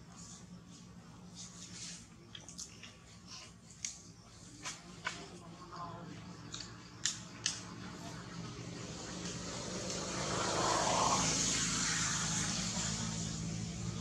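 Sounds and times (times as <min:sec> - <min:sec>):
motor vehicle passing by: 0:07.5 - 0:14.0.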